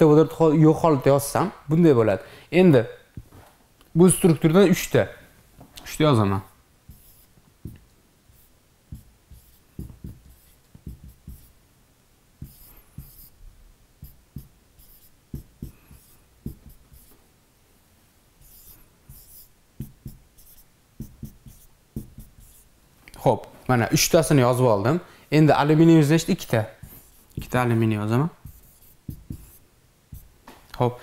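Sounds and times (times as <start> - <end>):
marker tapping on whiteboard: 6.9 - 11.5, 12.4 - 13.3, 14.0 - 17.2, 18.5 - 22.6, 26.8 - 27.6, 28.4 - 30.3
marker squeaking on whiteboard: 6.9 - 11.6, 12.4 - 13.4, 14.0 - 17.2, 18.4 - 22.7, 28.4 - 30.3.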